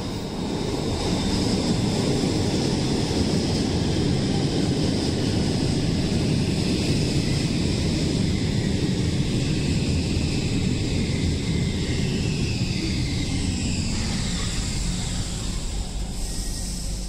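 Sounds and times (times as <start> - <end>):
metro train rumbling: 0.0 - 17.0
train motor whine: 11.4 - 17.0.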